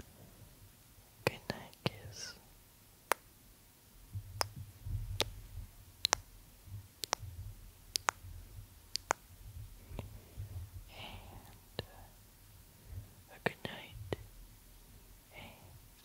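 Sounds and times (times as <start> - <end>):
faint low rumble: 0.0 - 16.0
mouth clicks: 4.4 - 4.6, 5.2 - 5.4, 6.0 - 6.3, 6.9 - 7.3, 7.9 - 8.3, 8.9 - 9.3.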